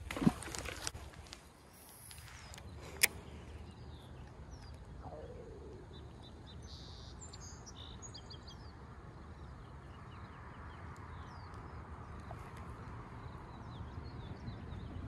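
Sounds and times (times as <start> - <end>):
small birds chirping: 1.6 - 15.0
wind rumbling on microphone: 10.7 - 15.0.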